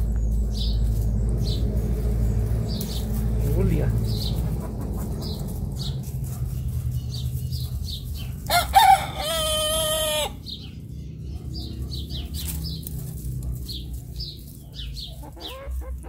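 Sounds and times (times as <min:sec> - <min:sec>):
rooster crowing: 0:08.4 - 0:10.5.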